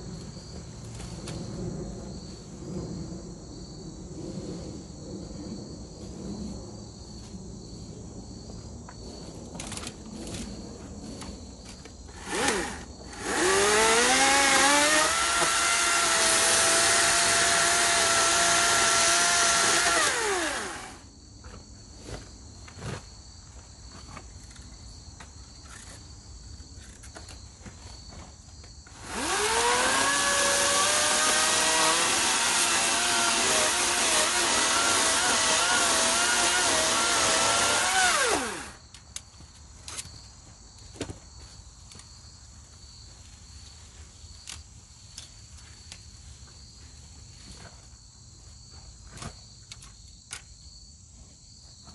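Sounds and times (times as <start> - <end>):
battery chainsaw whining: 12.1 - 21.1, 28.9 - 38.8.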